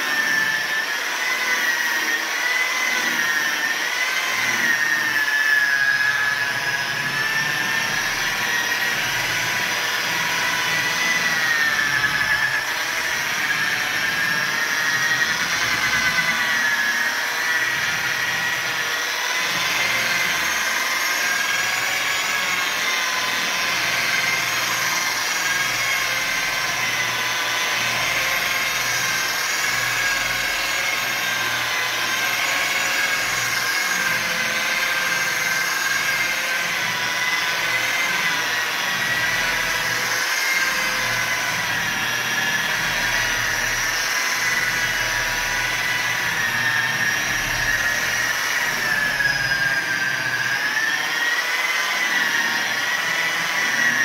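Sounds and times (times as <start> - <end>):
rotary polisher whine: 0.0 - 54.0.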